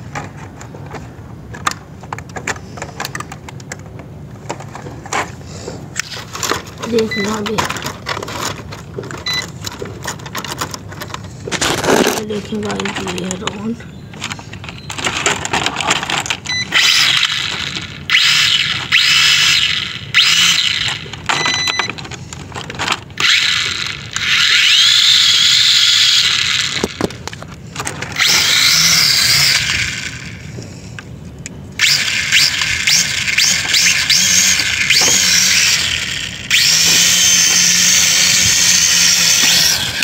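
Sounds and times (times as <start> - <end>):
toy drone motors whirring: 6.0 - 8.6, 14.9 - 21.7, 22.6 - 27.1, 28.0 - 30.6, 31.8 - 40.0.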